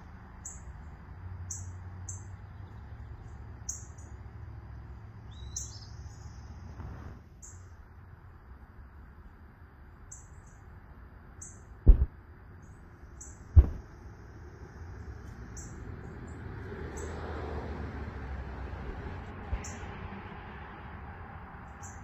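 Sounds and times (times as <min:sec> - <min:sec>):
small birds chirping: 0:00.3 - 0:06.8, 0:07.4 - 0:07.8, 0:10.0 - 0:10.7, 0:11.4 - 0:17.2, 0:19.5 - 0:19.9, 0:21.6 - 0:22.0
low steady rumble: 0:06.1 - 0:16.2
sharp loud low thumps: 0:11.9 - 0:12.1, 0:13.6 - 0:13.8.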